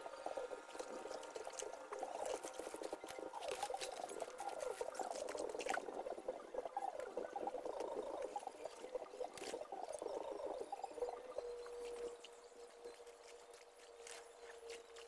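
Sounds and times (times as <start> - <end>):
dry stalks crackling and snapping: 0.4 - 10.1, 12.9 - 15.0.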